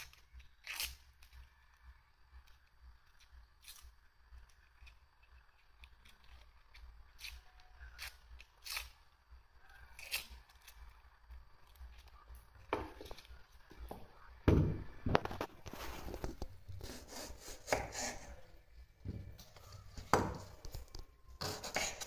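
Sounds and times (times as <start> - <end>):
knife peeling onion skin: 0.0 - 1.8, 2.4 - 12.3, 15.2 - 18.6, 19.5 - 22.0
knock on wooden cutting board: 14.5 - 14.9.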